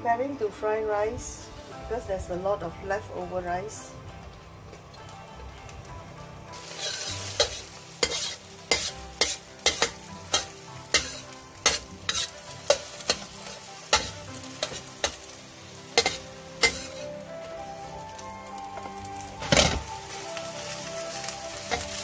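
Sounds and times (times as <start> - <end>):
eggs sizzling in a wok: 5.8 - 22.0
metal spatula scraping a pan: 6.5 - 17.2.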